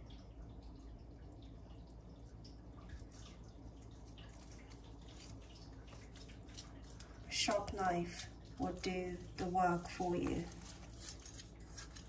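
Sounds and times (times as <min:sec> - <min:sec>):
low steady hum: 0:00.0 - 0:12.0
knife slicing meat wet clicks: 0:04.3 - 0:12.0.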